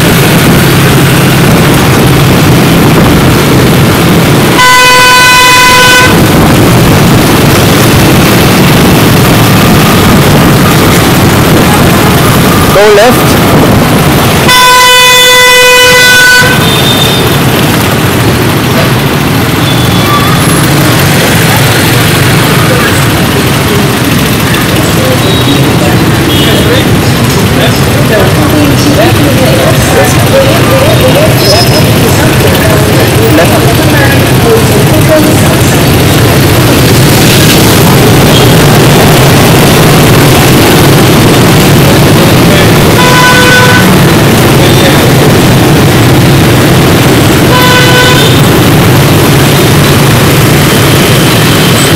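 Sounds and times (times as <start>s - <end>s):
motorbike and street traffic: 0.0s - 51.9s
horn honking: 3.8s - 6.6s, 14.2s - 17.5s, 19.4s - 24.2s, 24.9s - 27.1s, 42.5s - 45.1s, 47.3s - 48.7s
vehicle horn: 4.6s - 6.3s, 14.5s - 17.4s, 25.2s - 26.8s, 43.0s - 44.0s, 47.5s - 48.5s.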